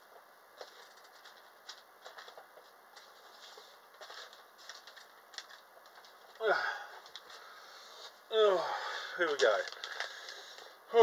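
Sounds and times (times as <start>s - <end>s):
packaging rustling and clicking: 0.6s - 6.4s, 7.0s - 7.5s, 9.2s - 10.7s.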